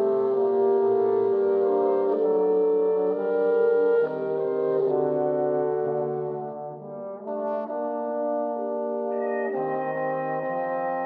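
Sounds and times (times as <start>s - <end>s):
brass ensemble playing chords: 0.0s - 11.0s.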